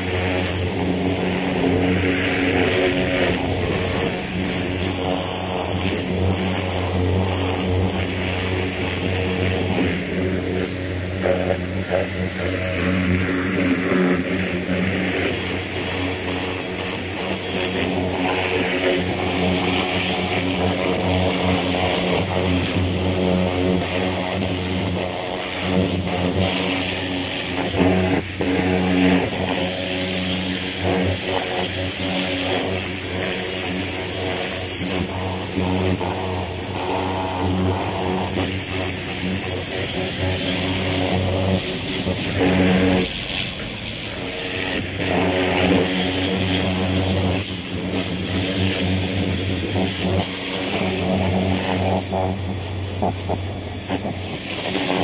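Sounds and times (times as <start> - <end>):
pressure washer spray hissing: 0.0 - 55.0.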